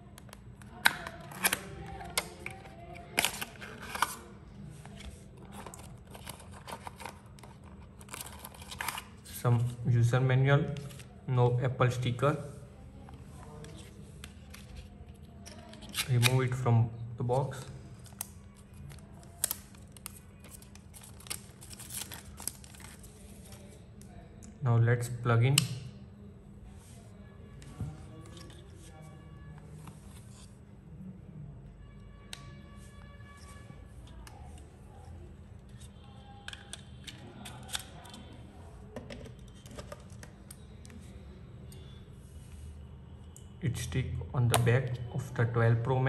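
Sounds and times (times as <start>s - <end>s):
packaging rustling: 18.1s - 23.7s.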